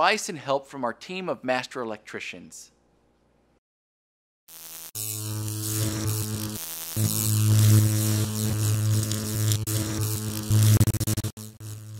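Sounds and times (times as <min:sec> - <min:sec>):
crackling static: 0:04.5 - 0:11.9.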